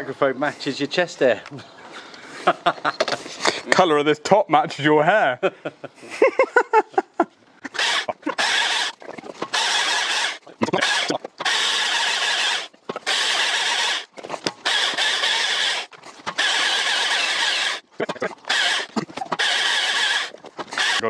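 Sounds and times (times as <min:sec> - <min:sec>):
chainsaw cutting logs: 0:07.6 - 0:21.0.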